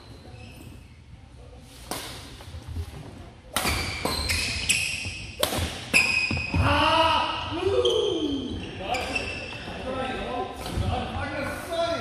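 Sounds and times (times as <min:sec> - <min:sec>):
racket hitting shuttlecock: 0:01.8 - 0:02.4, 0:03.5 - 0:06.3.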